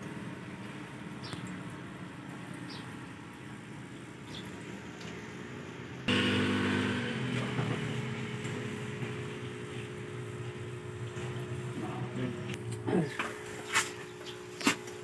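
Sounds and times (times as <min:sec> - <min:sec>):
vehicle engine running: 0:06.0 - 0:13.0.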